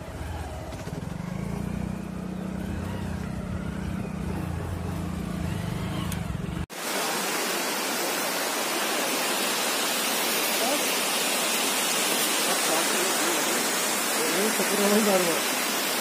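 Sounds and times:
motorcycle engine running: 0:00.0 - 0:06.7
steady rushing hiss: 0:06.7 - 0:16.0.

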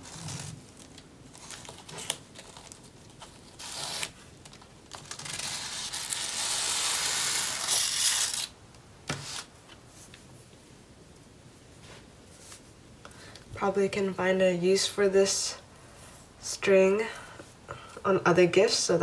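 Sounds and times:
plastic packaging crinkling: 0:00.0 - 0:08.5.

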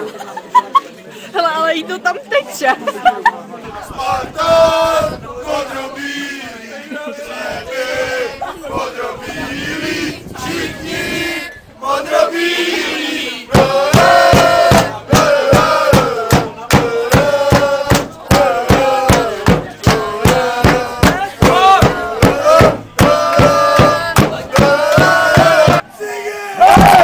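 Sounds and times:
football crowd chanting: 0:03.7 - 0:27.0
steady sharp beat: 0:13.5 - 0:25.8.

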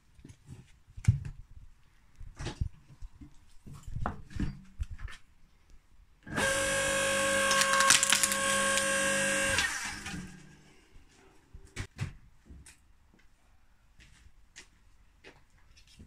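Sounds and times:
log splitter motor humming: 0:06.3 - 0:10.4
wood cracking and splitting: 0:06.4 - 0:09.7.

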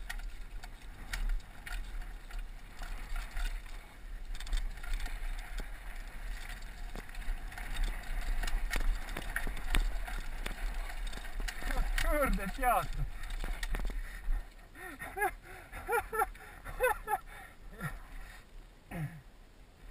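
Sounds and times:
wind rumbling on microphone: 0:00.0 - 0:14.6
mountain bike rattling over rocks: 0:00.0 - 0:18.5.

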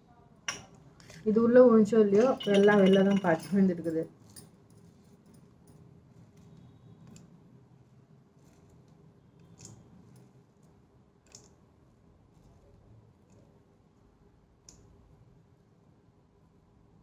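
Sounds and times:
dried split peas clicking on tiles: 0:02.2 - 0:03.9.

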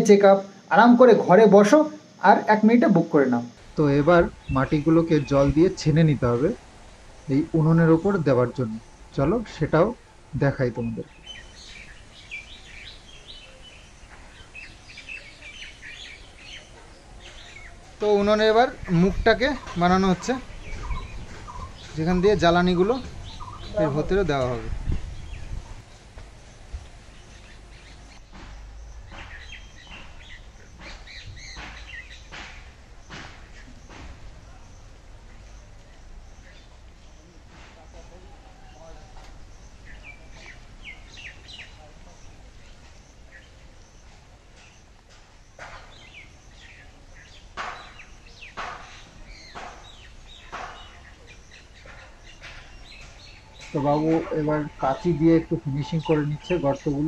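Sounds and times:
small birds chirping: 0:00.0 - 0:57.0.

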